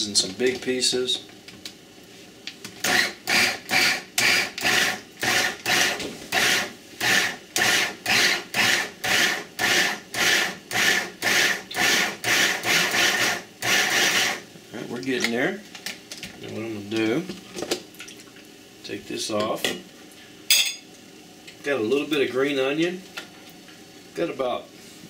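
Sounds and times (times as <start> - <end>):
food chopper pulsing: 2.8 - 14.4.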